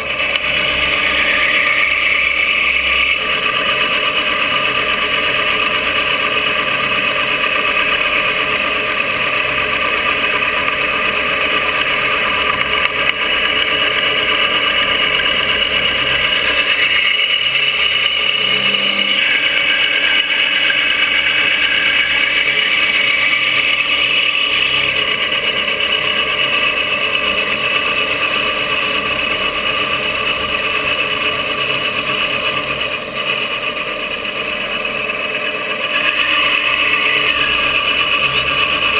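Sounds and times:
milling machine whine: 0.0 - 38.9
end mill grinding hiss: 11.2 - 26.2, 34.2 - 38.9.

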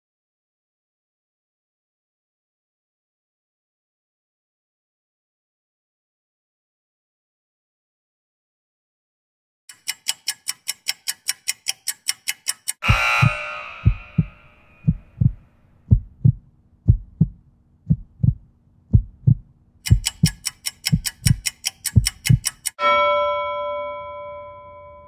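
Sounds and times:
fast timer ticking: 9.7 - 22.8
ringing signal: 12.8 - 15.0, 22.8 - 25.0
paired low heartbeat thumps: 12.8 - 22.5.

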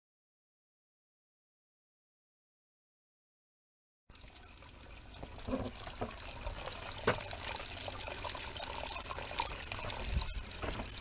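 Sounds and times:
water trickling onto plastic grate: 4.1 - 11.0.

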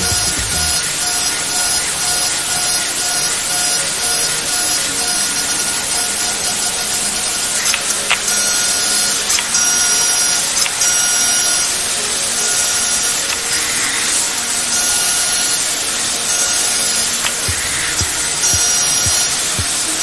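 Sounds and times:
milling machine cutting hiss: 0.0 - 20.0.

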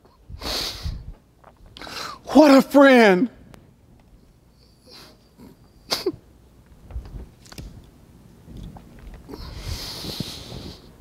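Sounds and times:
man breathing close to microphone: 0.3 - 1.2, 9.3 - 11.0.

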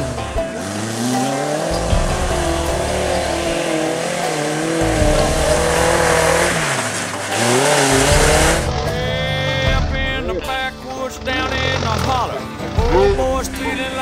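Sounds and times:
tyres spinning in mud: 0.0 - 10.1
mud spraying: 0.0 - 12.1
engine revving: 0.0 - 14.0.

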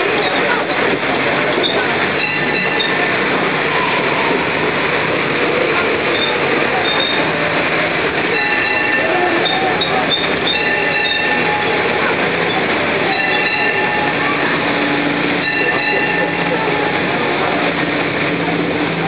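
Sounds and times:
short high squeaks: 6.1 - 7.3, 8.3 - 11.7.

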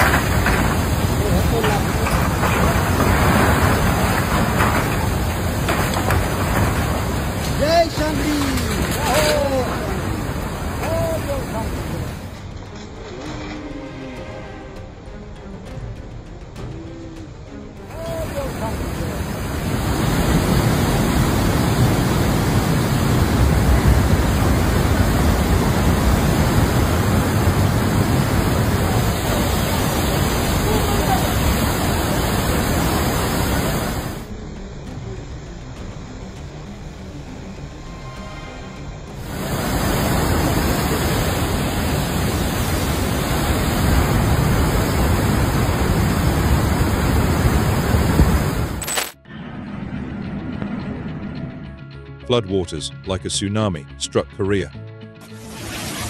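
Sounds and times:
flood water rushing: 0.0 - 12.5, 17.8 - 34.4, 39.2 - 49.2.

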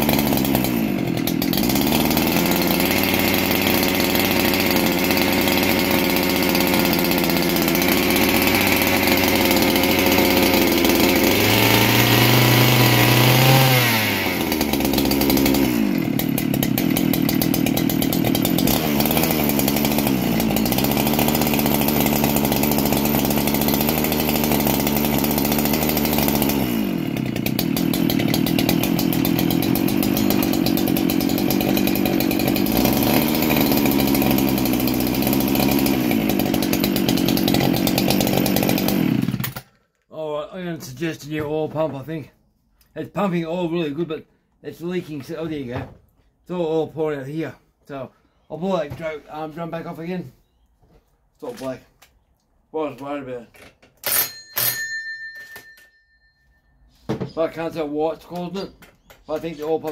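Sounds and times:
chainsaw engine revving: 0.0 - 39.7.

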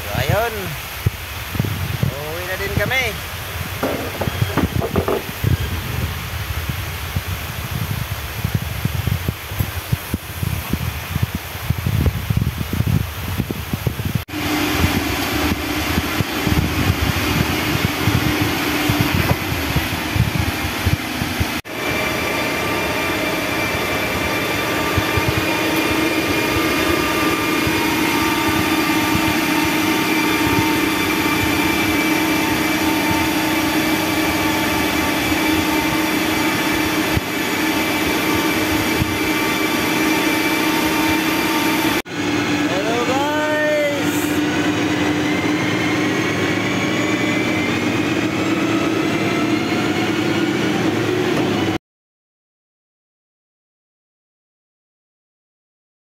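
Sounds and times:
steady mechanical whine: 0.0 - 7.3, 13.0 - 51.8
heavy low rumble: 0.8 - 14.2
diesel engine running: 2.2 - 7.7, 14.3 - 51.8.

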